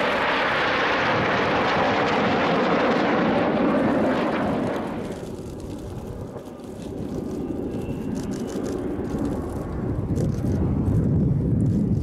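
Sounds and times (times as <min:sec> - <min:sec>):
jet aircraft flying past: 0:00.0 - 0:12.0.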